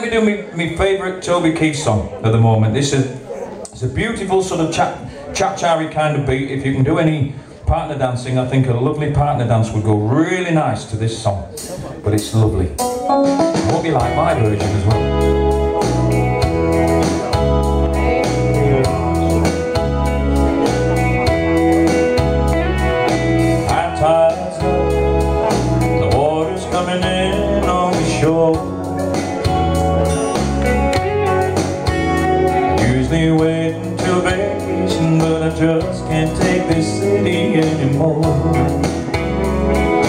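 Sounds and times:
country music: 11.3s - 40.0s.

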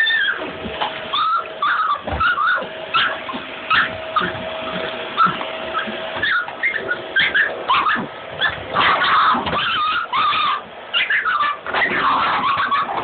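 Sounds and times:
dogs yipping and whining: 0.0s - 13.0s.

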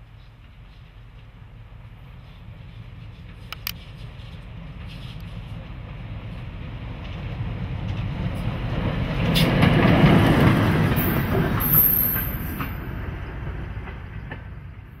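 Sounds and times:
high wheel squeal: 11.0s - 12.8s.

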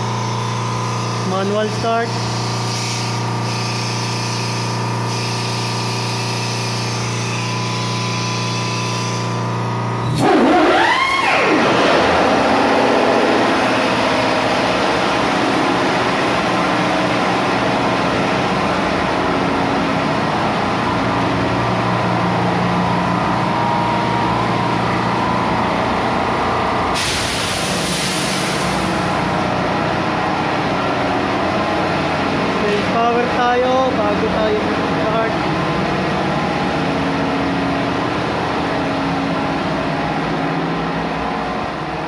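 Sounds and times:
diesel generator engine running: 0.0s - 42.0s
loud hiss: 26.9s - 29.2s.

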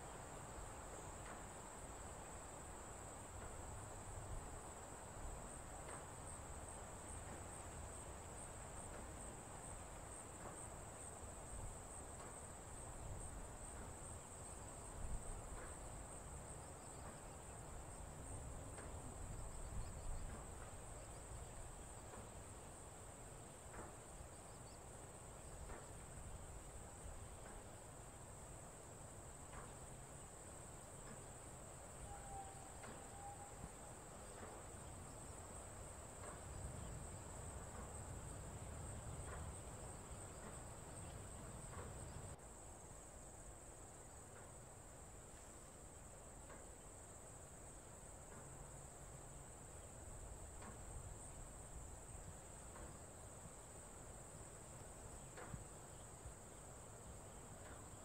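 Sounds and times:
insect drone: 0.0s - 58.0s
brief whistle: 32.0s - 33.7s.

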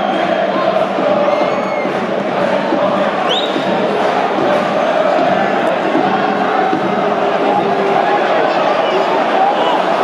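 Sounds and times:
football crowd singing and chanting: 0.0s - 10.0s
high whistle: 3.3s - 3.6s.

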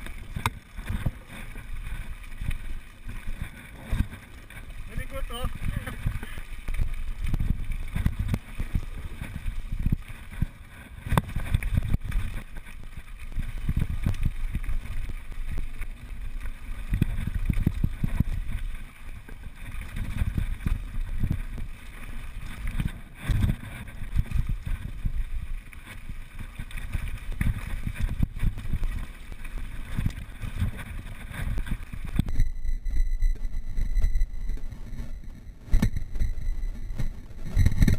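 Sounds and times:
wind buffeting microphone: 16.7s - 18.7s.

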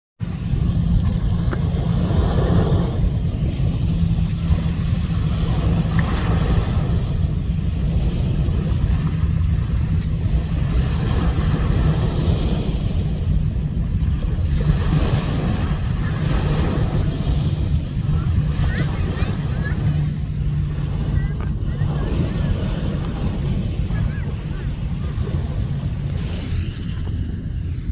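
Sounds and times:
boat engine hum: 0.2s - 27.9s
water rushing: 0.2s - 27.9s
wind buffeting microphone: 0.2s - 27.9s.

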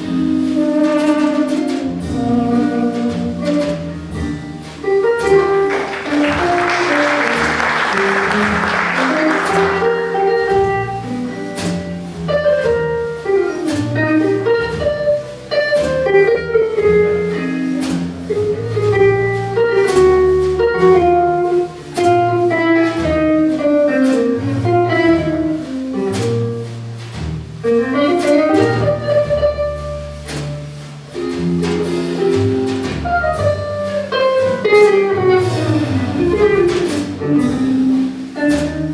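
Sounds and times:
double bass: 0.0s - 38.9s
drums and cymbals: 0.0s - 38.9s
jazz guitar solo: 0.0s - 38.9s
audience applause: 5.6s - 10.3s.

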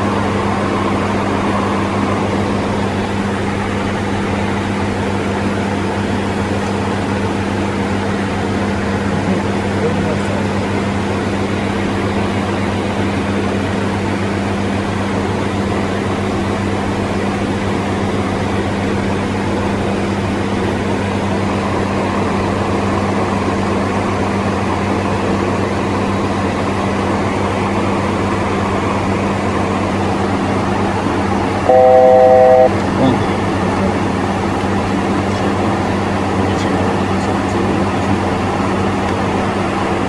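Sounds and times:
jet cockpit airflow and engines: 0.0s - 40.0s
loud electronic tone: 31.6s - 32.8s.

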